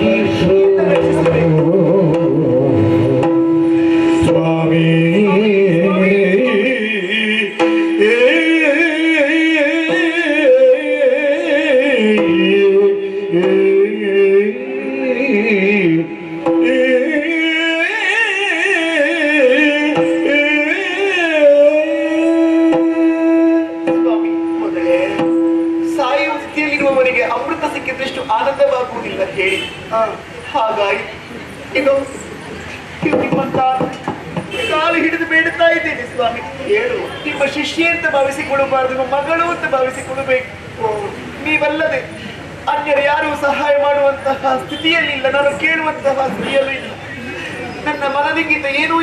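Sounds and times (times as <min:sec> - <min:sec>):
person singing ornamented verse: 0:04.2 - 0:24.6.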